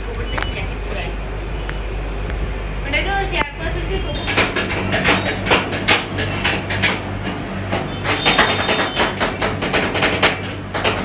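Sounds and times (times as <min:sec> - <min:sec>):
steady low hum: 0:00.0 - 0:11.0
metal spatulas scraping cold plate: 0:04.2 - 0:10.7.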